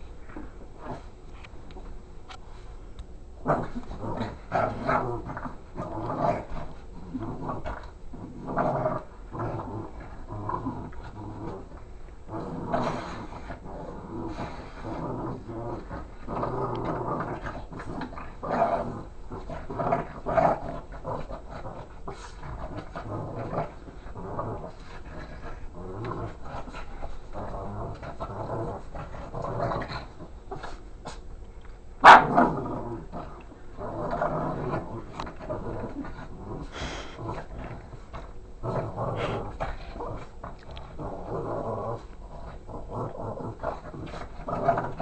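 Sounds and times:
dog growling: 0.0 - 1.9, 3.4 - 31.3, 31.9 - 45.0
dog barking: 32.0 - 32.3.

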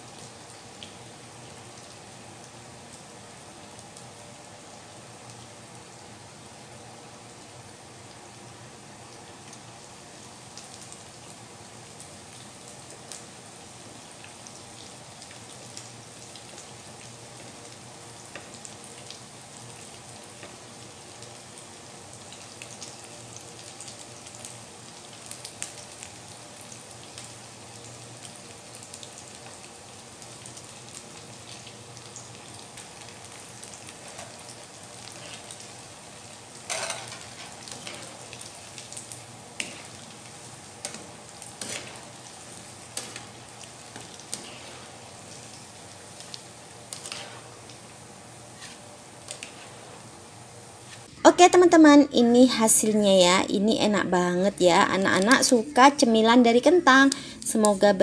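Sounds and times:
food sizzling in hot oil: 0.0 - 58.0
strainer scraping and splashing oil: 46.9 - 47.6.

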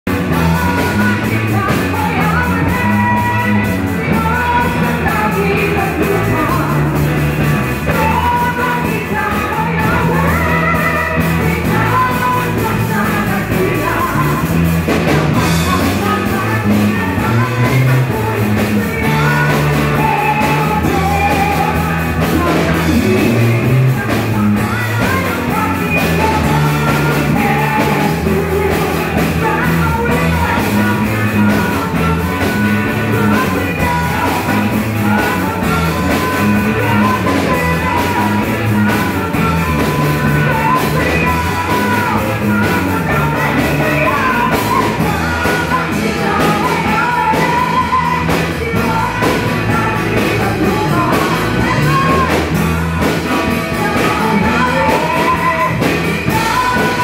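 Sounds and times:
amplified electric guitars: 0.0 - 57.0
woman singing into a microphone: 0.1 - 57.0.

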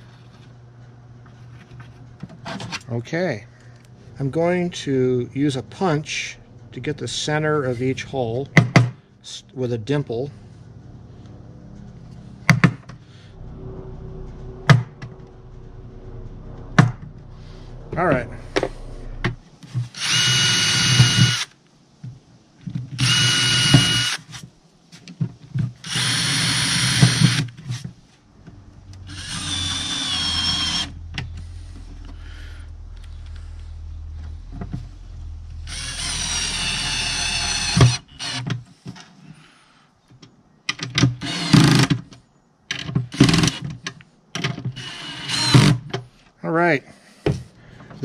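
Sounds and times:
cordless drill drilling wood: 19.9 - 21.5, 23.0 - 24.3, 25.8 - 27.5, 29.1 - 31.0, 35.7 - 38.5, 41.2 - 41.8, 44.8 - 45.8
drill driving screws clicking: 20.0 - 21.5, 23.0 - 24.2.

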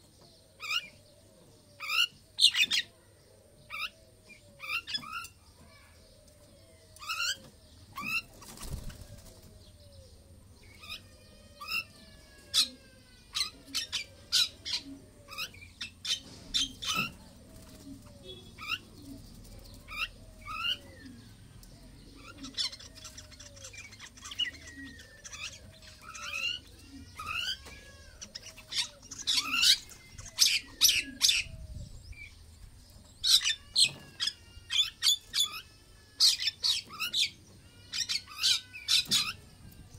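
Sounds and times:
birds chirping and whistling: 12.6 - 39.9.

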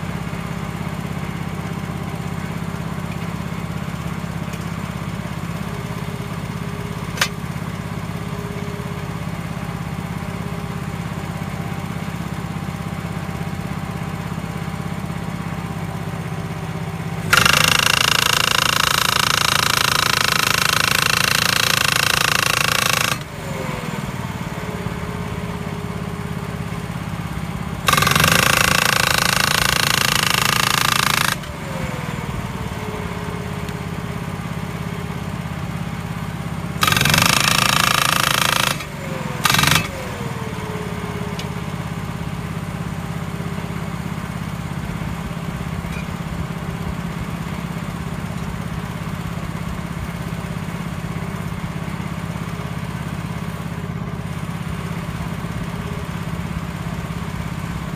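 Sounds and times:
hydraulic post driver hammering: 7.1 - 7.5, 17.2 - 23.4, 27.8 - 31.6, 36.7 - 40.2
power pack engine running: 17.0 - 35.2, 36.6 - 41.6.

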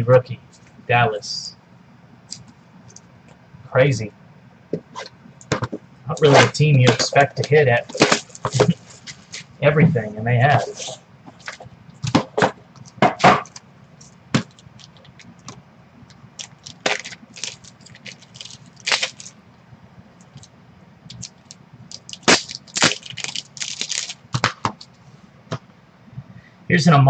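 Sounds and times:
plastic packaging crackling: 6.2 - 9.4, 12.8 - 15.6, 16.4 - 19.4, 21.1 - 25.0.

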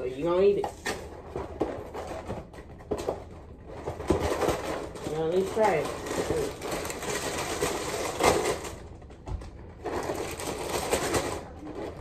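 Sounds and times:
plastic bag crinkling: 3.6 - 9.0, 9.6 - 12.0.

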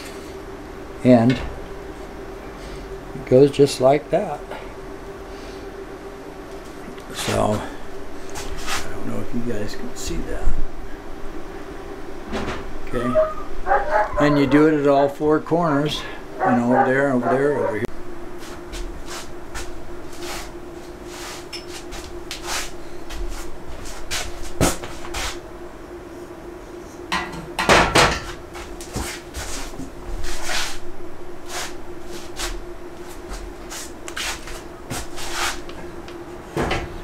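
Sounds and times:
faint hum: 0.0 - 37.0.

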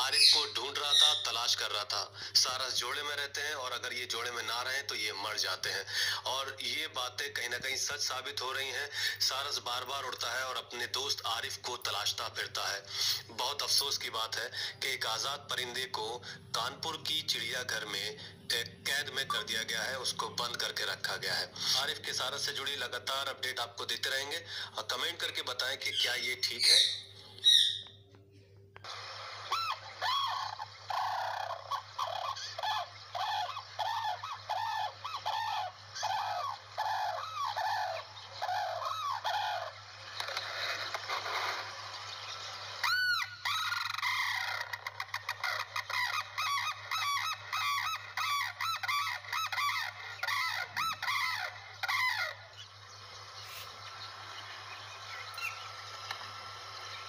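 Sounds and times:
cranes trumpeting calls: 0.0 - 1.8, 28.9 - 57.0.

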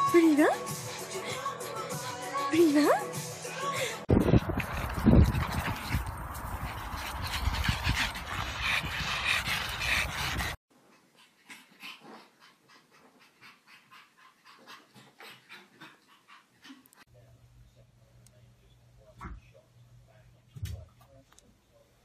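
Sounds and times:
dog panting and whimpering: 3.5 - 17.1
small dogs playing rough: 4.1 - 17.1.

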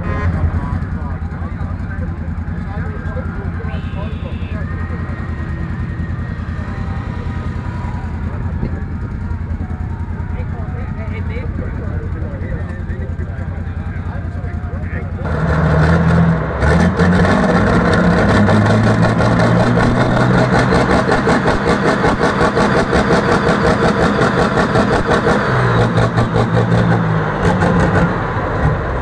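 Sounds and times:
tractor engine running loud: 0.0 - 29.0.

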